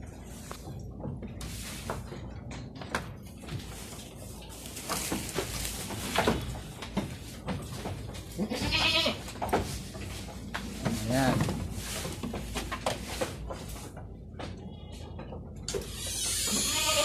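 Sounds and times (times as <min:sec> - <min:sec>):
goat bleating: 0:08.3 - 0:09.4, 0:16.4 - 0:17.0.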